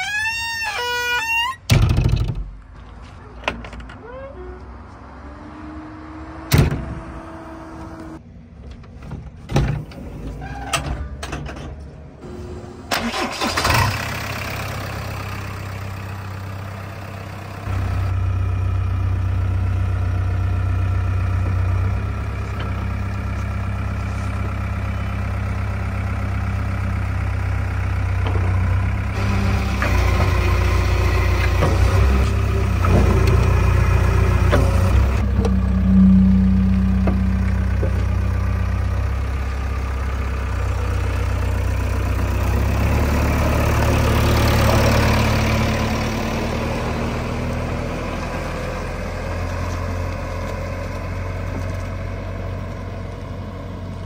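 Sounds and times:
diesel engine idling: 12.0 - 54.0.

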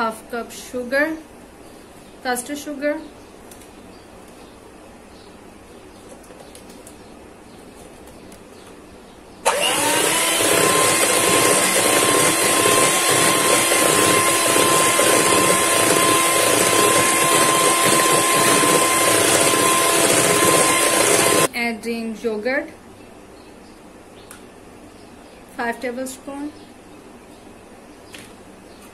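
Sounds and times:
electric hand mixer motor: 9.4 - 21.5.

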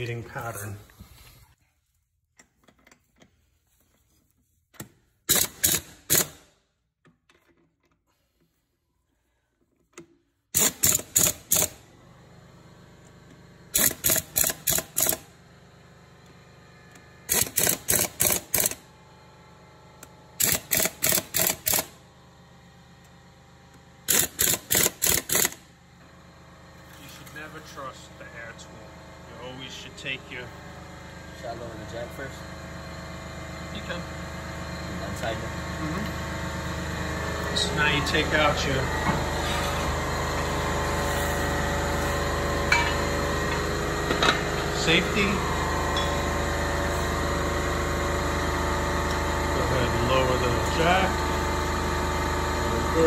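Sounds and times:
pneumatic impact wrench bursts: 5.3 - 6.5, 10.5 - 11.9, 13.7 - 15.3, 17.2 - 18.8, 20.4 - 22.0, 24.0 - 25.7.

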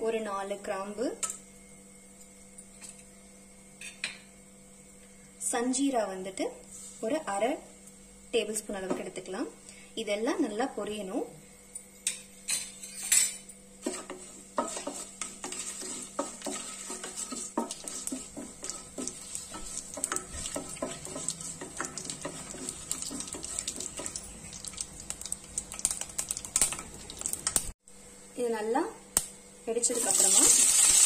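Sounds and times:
wooden spatula scraping pot: 13.8 - 24.3
spices sizzling and crackling: 13.8 - 27.8, 29.7 - 31.0.

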